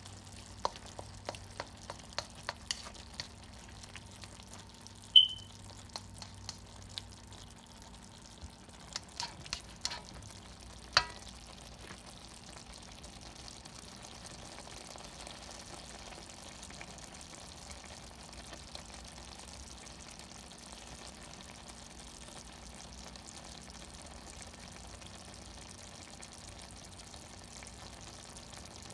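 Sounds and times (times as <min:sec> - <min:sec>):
faint steady sizzle: 0:00.0 - 0:28.9
utensil clinking against pan: 0:11.0 - 0:11.2.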